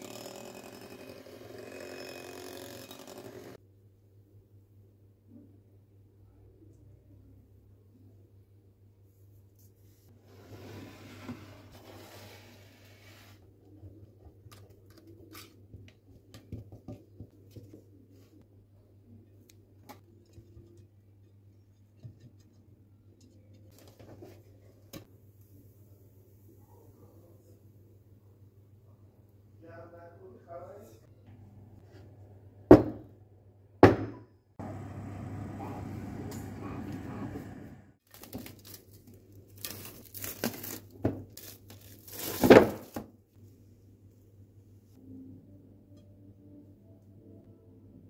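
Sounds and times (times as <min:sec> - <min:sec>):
oven humming: 0:34.6 - 0:38.0
cling film crinkling and tearing: 0:38.0 - 0:43.0.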